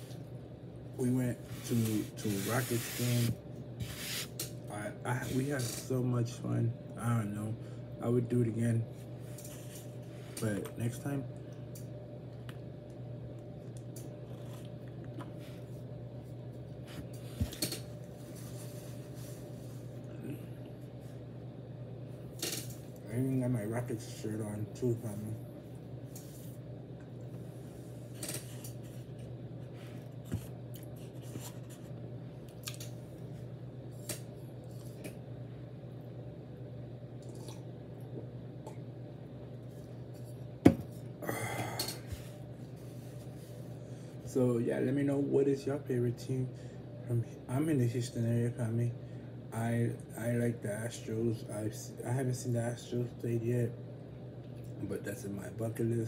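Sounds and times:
steady low hum: 0.0 - 56.0
person chewing bread: 13.6 - 15.7, 32.5 - 32.9.

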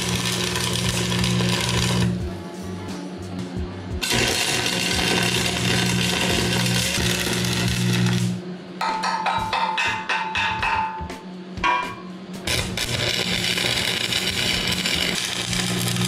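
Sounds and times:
arc welder crackling: 0.0 - 2.3, 4.0 - 8.4, 12.4 - 16.0.

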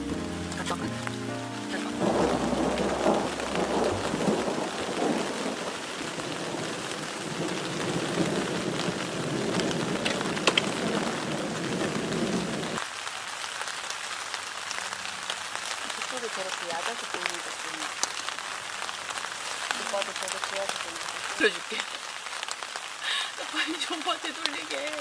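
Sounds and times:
heavy rain: 0.0 - 25.0
thunder rumbling: 1.7 - 12.8
water drip taps: 10.0 - 10.8.

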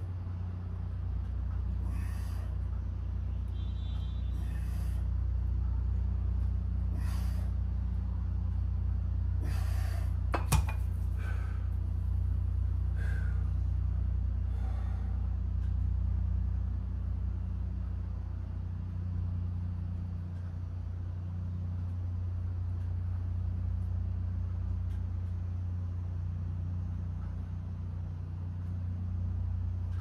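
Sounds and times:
steady low rumble: 0.0 - 30.0
person breathing forcefully: 1.7 - 2.7, 4.3 - 5.2, 6.8 - 7.8, 9.3 - 10.3, 11.0 - 12.0, 12.7 - 15.6.

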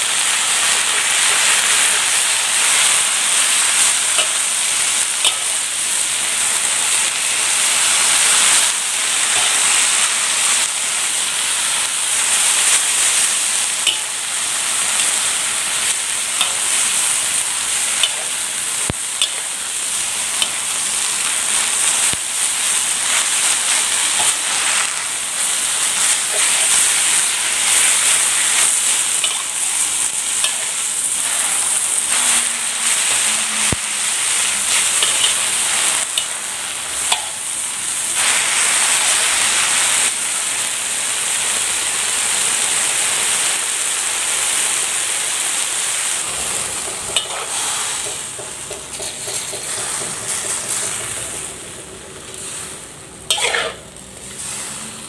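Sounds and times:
vegetables sizzling in a wok: 0.0 - 55.0
spatula scraping and knocking pan: 46.3 - 51.4, 53.3 - 53.8.

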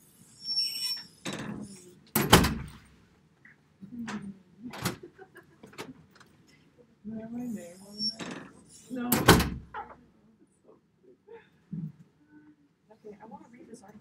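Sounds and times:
door opening and closing: 0.5 - 2.9, 4.1 - 5.1, 8.0 - 10.0.

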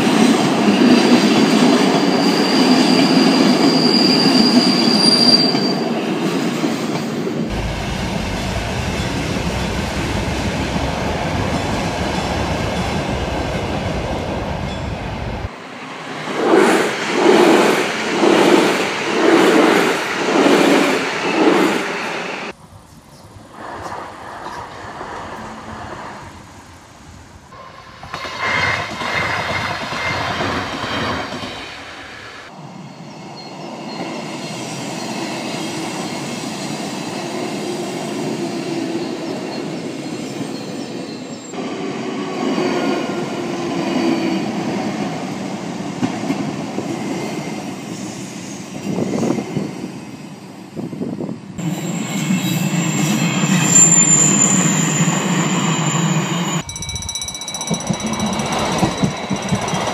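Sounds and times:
trains passing over tracks: 0.0 - 59.9
rhythmic knocking: 56.7 - 59.9.

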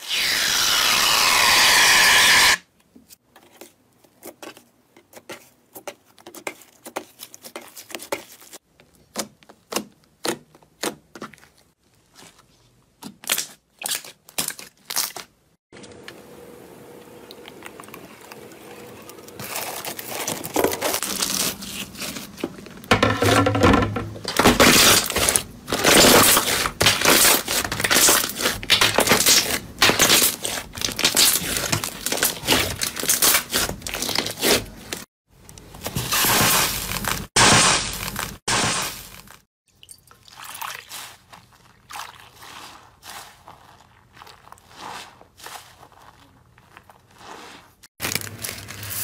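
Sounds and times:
slime squelching: 24.7 - 34.9, 40.1 - 49.0.

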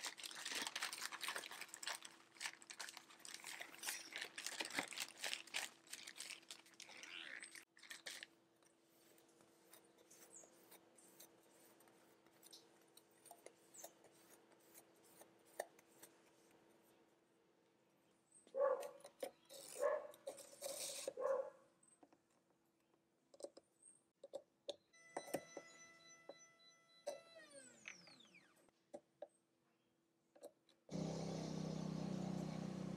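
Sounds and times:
plastic bag crinkling: 0.0 - 8.4.

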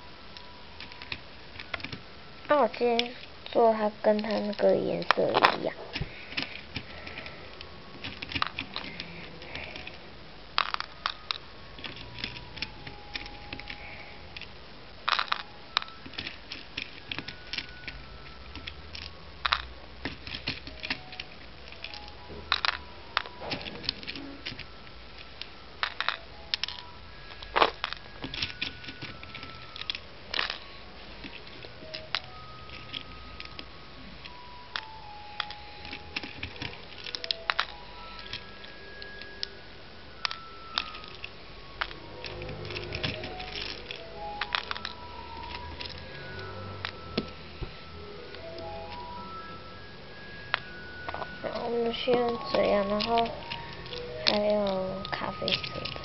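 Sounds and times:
plastic beads clicking and rattling: 0.3 - 56.0.

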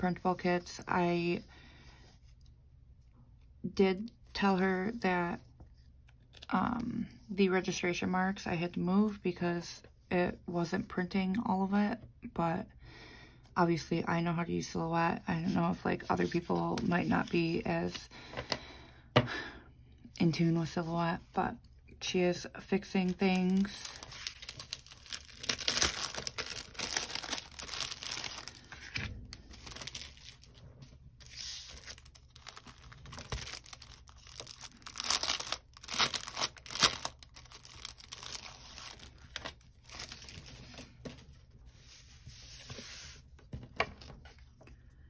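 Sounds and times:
plastic sleeves crinkling: 22.6 - 43.2.

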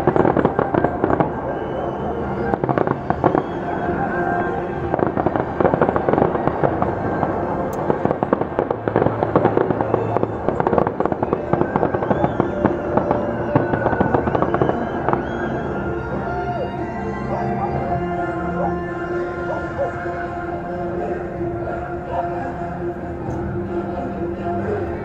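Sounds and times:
fireworks crackling and popping: 0.0 - 16.8
music playing: 0.0 - 25.0.

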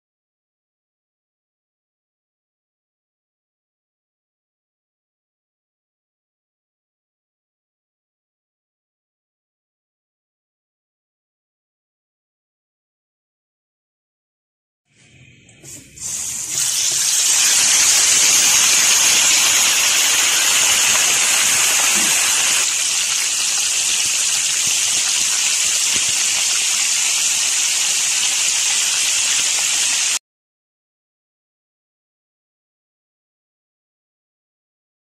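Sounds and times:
chicken sizzling in hot oil: 15.7 - 30.2.

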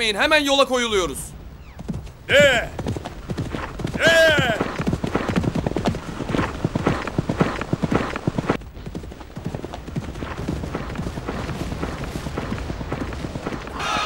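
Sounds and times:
horse hoofbeats galloping: 1.4 - 14.0.

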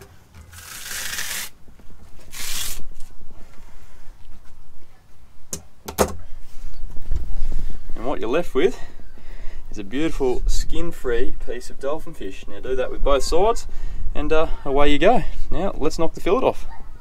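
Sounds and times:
fish skin tearing: 0.4 - 1.6, 2.3 - 2.9.

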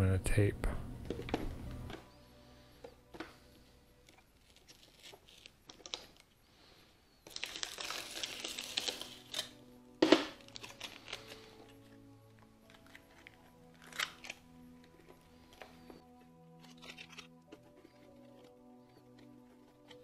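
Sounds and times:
foil tape crinkling and tearing: 4.0 - 6.4, 7.2 - 20.0
sharp foil crackle: 4.0 - 11.9, 12.6 - 14.5.

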